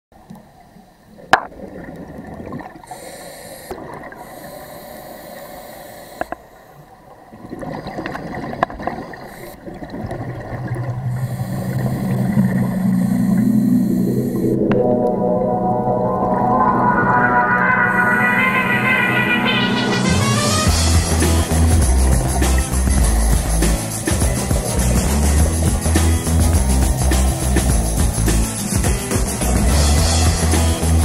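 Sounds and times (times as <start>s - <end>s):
bubbles gurgling: 1.2s - 3.0s, 7.2s - 19.1s
regulator hissing: 11.1s - 14.6s
ambient music drone: 11.1s - 28.0s.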